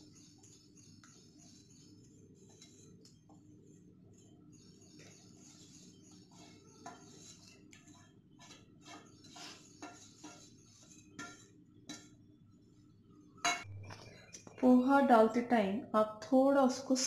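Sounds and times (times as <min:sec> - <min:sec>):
fingers scraping a steel plate: 0:04.6 - 0:12.1.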